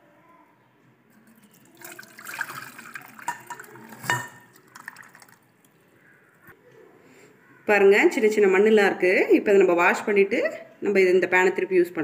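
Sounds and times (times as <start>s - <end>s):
syrup pouring and splashing: 1.2s - 5.8s.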